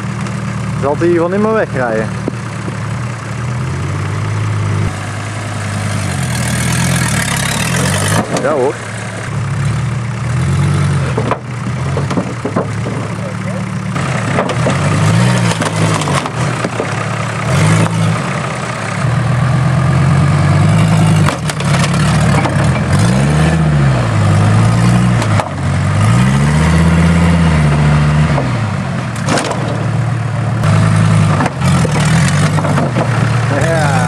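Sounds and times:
off-road engine revving: 0:00.0 - 0:34.0
short knocks: 0:11.1 - 0:13.2.

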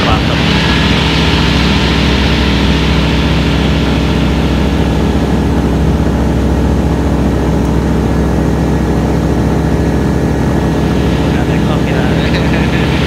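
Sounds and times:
propeller aircraft engine running: 0:00.0 - 0:13.0.

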